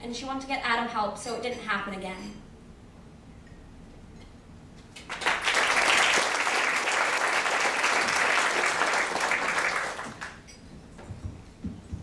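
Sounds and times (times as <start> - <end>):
audience applauding: 5.0 - 10.4.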